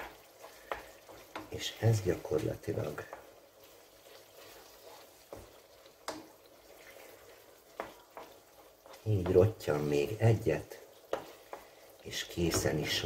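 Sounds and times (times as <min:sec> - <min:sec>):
sauce simmering in a pan: 0:00.0 - 0:13.0
wooden spoon stirring: 0:00.0 - 0:13.0.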